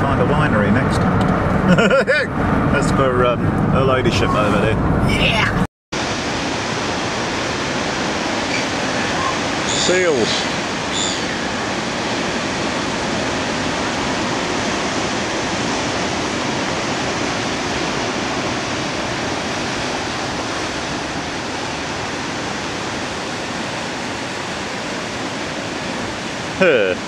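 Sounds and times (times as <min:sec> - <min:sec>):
sea surf on rocky shore: 0:06.0 - 0:27.0.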